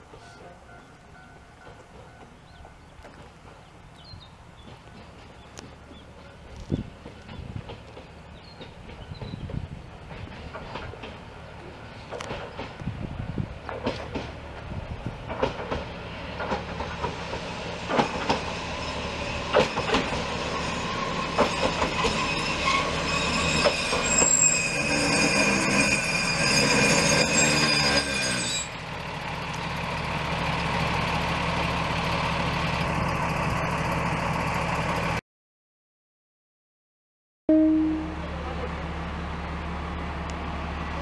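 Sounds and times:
wheels clicking over rail joints: 0.0 - 13.0, 13.6 - 18.6, 19.4 - 20.4, 21.2 - 33.2
train brakes squealing: 17.4 - 29.0.

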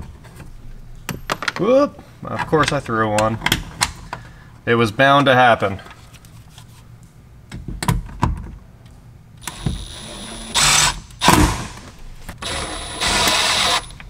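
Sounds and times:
cordless drill driving screws: 9.4 - 11.8, 12.4 - 14.0.

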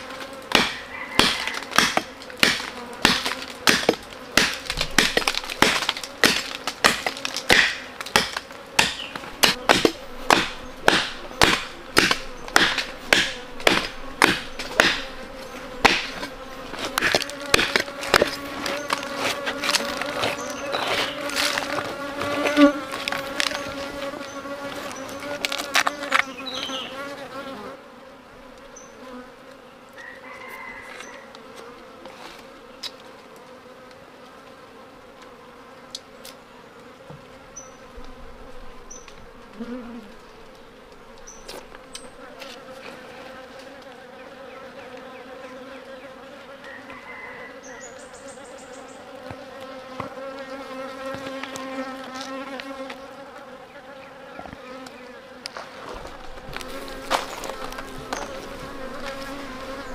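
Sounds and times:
bees buzzing: 0.0 - 59.9
wood cracking and splintering: 0.5 - 23.9, 55.9 - 59.3.

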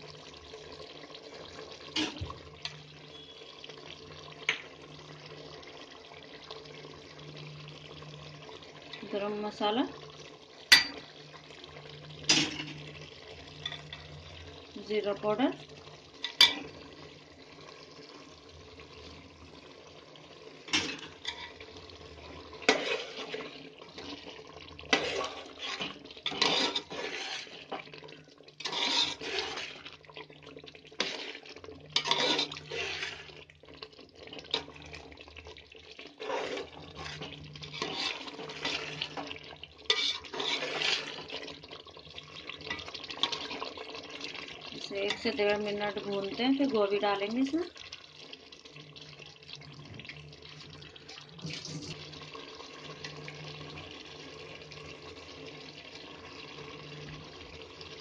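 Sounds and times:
ladle stirring watery curry: 20.7 - 45.4.

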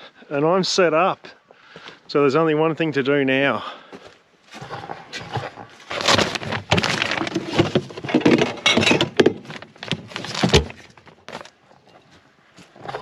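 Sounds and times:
bottles rattling: 5.3 - 11.4
clicks and knocks: 6.1 - 10.8.

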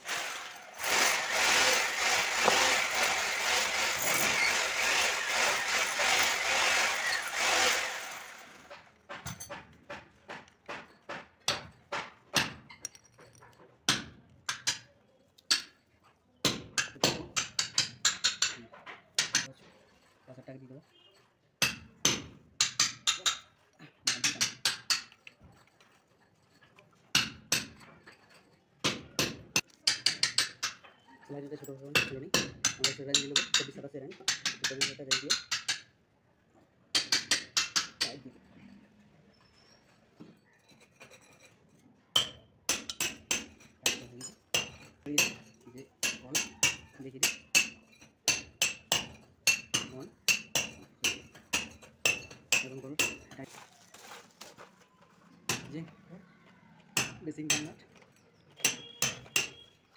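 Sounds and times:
metal tools knocking on ceramic basin: 9.0 - 14.9.

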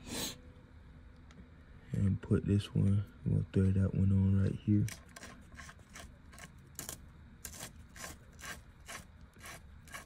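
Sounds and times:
metal threads scraping and clicking: 4.8 - 10.0.

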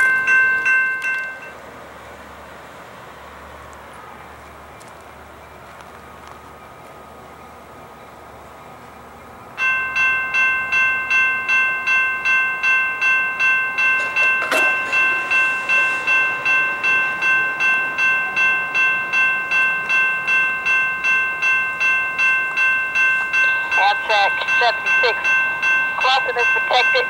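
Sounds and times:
grade-crossing bell ringing: 0.0 - 1.7, 8.6 - 27.0.

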